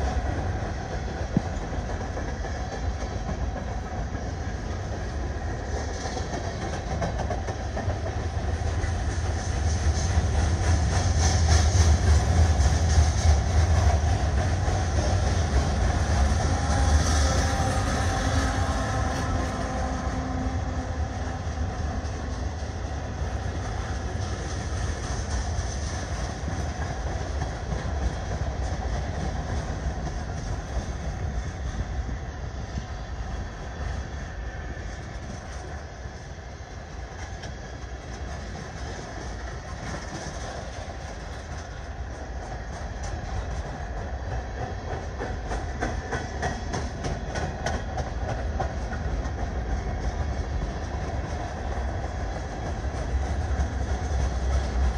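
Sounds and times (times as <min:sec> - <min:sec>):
train wheels clacking on rails: 0:00.0 - 0:54.9
locomotive engine: 0:06.7 - 0:32.4.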